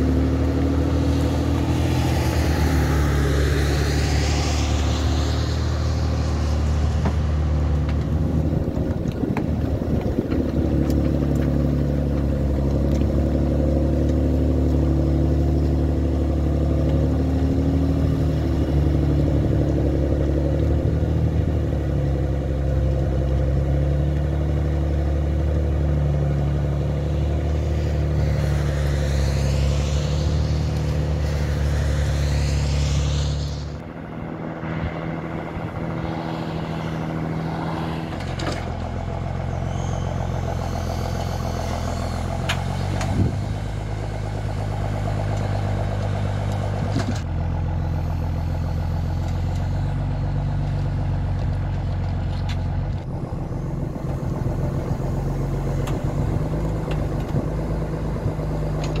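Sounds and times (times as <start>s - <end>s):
machine engine running: 25.7s - 38.1s, 38.7s - 51.8s, 52.7s - 59.0s.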